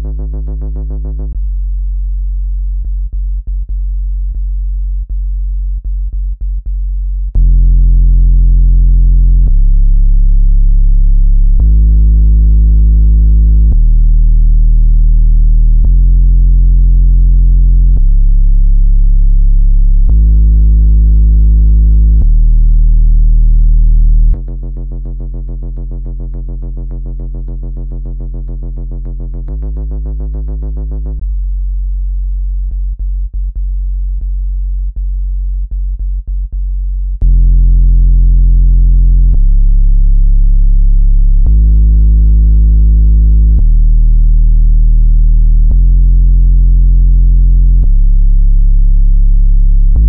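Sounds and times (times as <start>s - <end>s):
loud deep synthesized hum: 0.0s - 50.0s
low tone: 0.0s - 50.0s
quieter buzzy tone: 0.0s - 50.0s.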